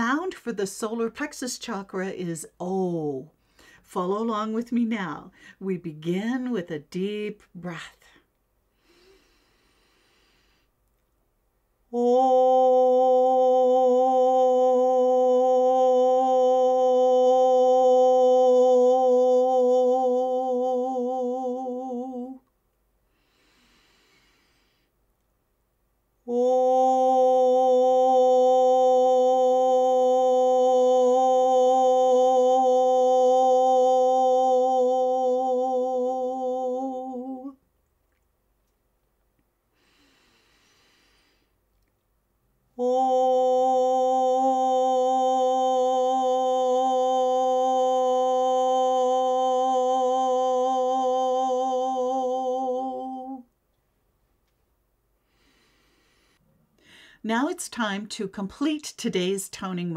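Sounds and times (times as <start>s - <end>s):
woman singing sustained vowel: 0.0s - 3.3s, 11.9s - 22.4s, 26.2s - 37.6s, 42.8s - 53.5s
soft breath: 3.3s - 3.9s, 5.3s - 5.6s, 8.0s - 10.8s, 23.0s - 25.0s, 39.7s - 41.6s, 55.2s - 57.2s.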